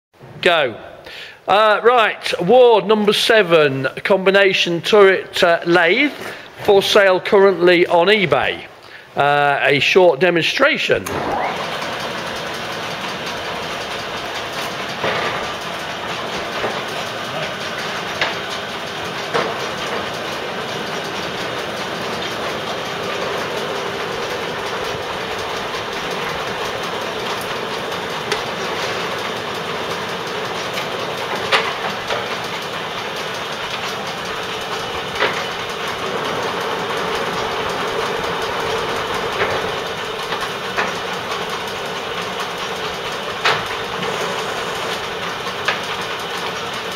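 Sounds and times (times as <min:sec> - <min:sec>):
lathe mechanical clatter: 0:10.5 - 0:46.9.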